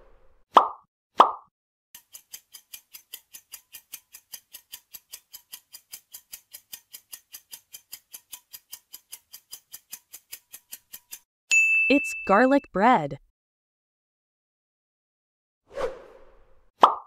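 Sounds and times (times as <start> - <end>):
countdown timer ticking: 10.7 - 13.2.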